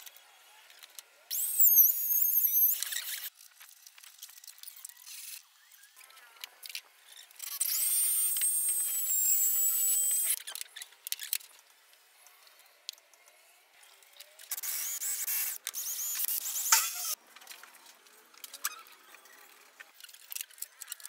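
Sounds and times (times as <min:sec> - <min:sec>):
electric drill boring into wood: 0:07.6 - 0:10.4, 0:14.6 - 0:17.2.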